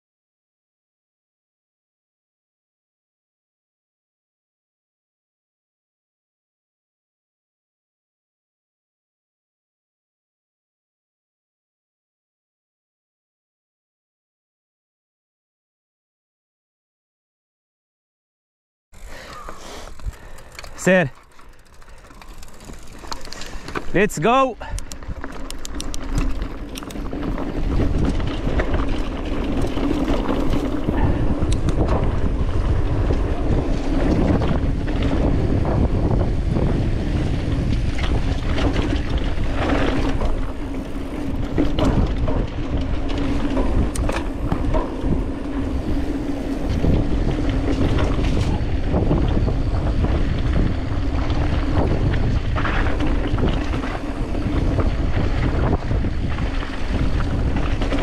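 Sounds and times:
bike knocks and rattles: 0:19.0 - 0:24.0, 0:24.8 - 0:58.0
bike tyres rumbling on dirt: 0:19.0 - 0:58.0
wind buffeting microphone: 0:19.0 - 0:58.0.

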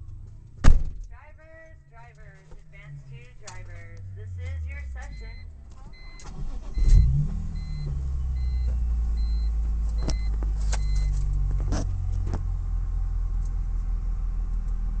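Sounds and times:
car engine idling: 0:00.0 - 0:15.0
car warning chime beeps: 0:01.7 - 0:11.2.

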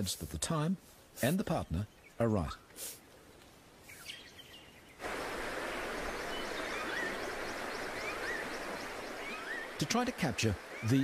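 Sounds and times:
river water rushing: 0:05.0 - 0:11.0
bird whistled calls: 0:06.3 - 0:09.8.

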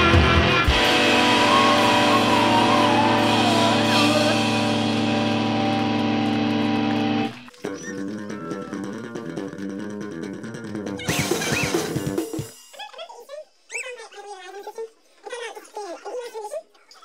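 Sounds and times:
bass guitar notes: 0:00.0 - 0:11.1
rock band playing: 0:00.0 - 0:12.5
held electric guitar chord ringing: 0:00.2 - 0:07.5.

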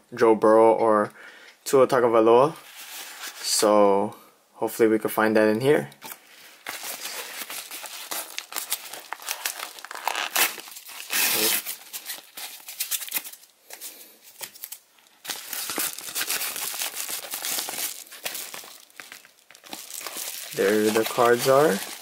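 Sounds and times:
paper crinkling and tearing: 0:06.0 - 0:22.0.

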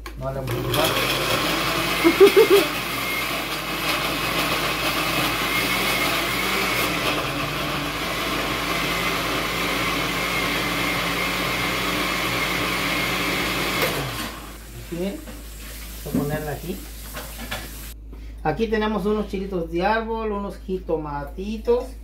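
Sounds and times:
blender motor running: 0:00.4 - 0:15.1.

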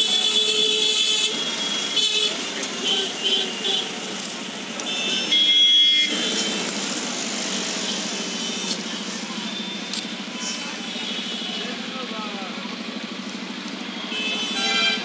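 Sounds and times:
vehicle horn: 0:00.0 - 0:04.0, 0:04.9 - 0:06.7, 0:14.0 - 0:15.0
busy street traffic: 0:00.0 - 0:15.0.

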